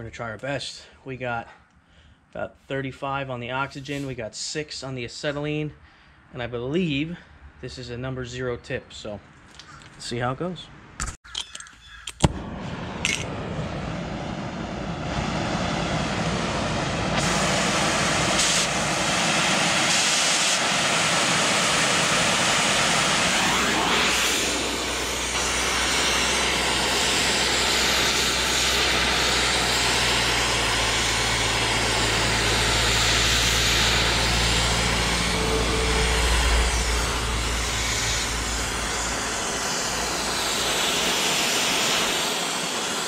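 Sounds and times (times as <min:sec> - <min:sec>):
torch lighting pop: 0:12.2 - 0:13.3
cutting torch hissing: 0:12.3 - 0:43.0.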